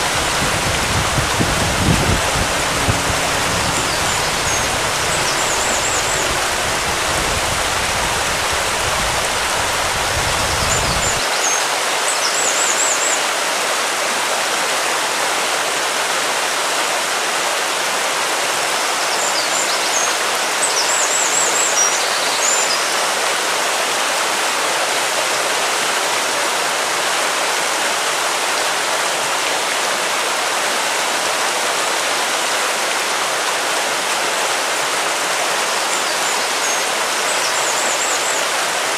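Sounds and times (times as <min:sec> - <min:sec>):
low rumble: 0:00.0 - 0:10.8
rushing water noise: 0:00.0 - 0:38.9
high chirping trills: 0:03.0 - 0:07.1.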